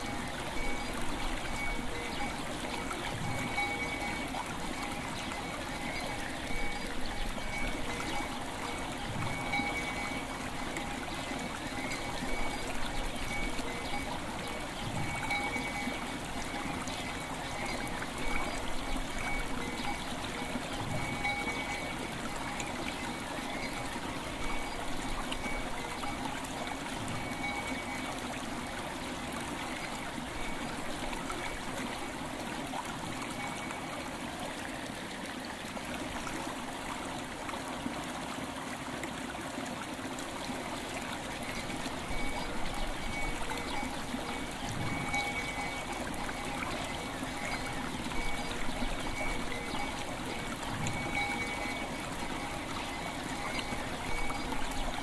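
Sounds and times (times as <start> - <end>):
faint ringing bell tones: 0.0 - 28.8, 33.0 - 34.8, 41.2 - 55.0
river water running over stones: 0.0 - 55.0.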